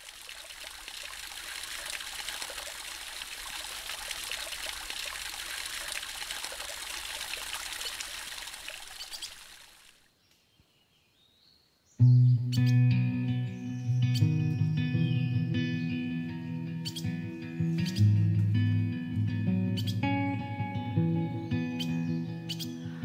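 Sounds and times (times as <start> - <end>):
trickle of running water: 0.0 - 10.1.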